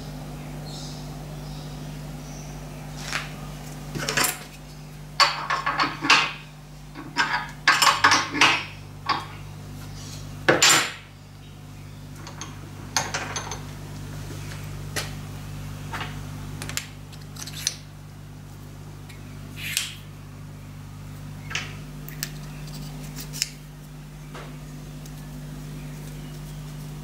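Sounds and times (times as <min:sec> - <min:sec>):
steady low hum: 0:00.0 - 0:27.0
spanner clinking on metal: 0:07.0 - 0:09.3.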